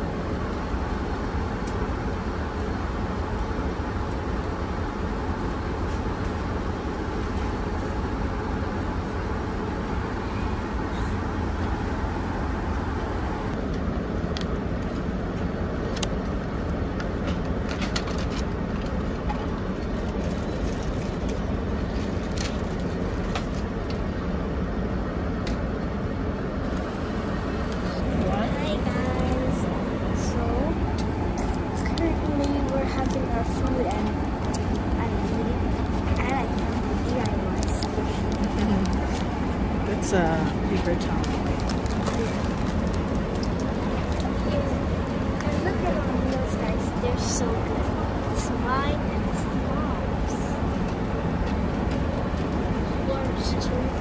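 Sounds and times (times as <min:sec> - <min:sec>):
airliner cabin hum: 0:00.0 - 0:54.0.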